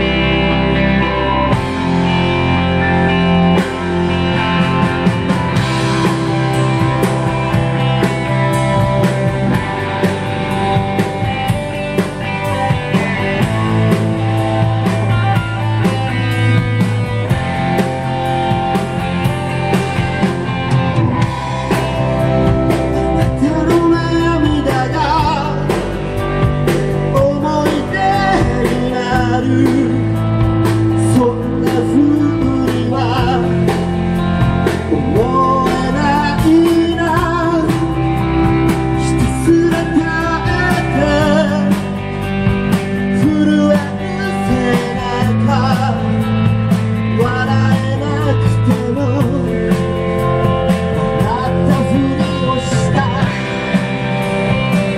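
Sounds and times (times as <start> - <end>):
bass guitar: 0.0 - 54.9
drum kit beat: 0.0 - 54.9
electric guitars: 0.0 - 54.9
man singing: 22.7 - 53.8.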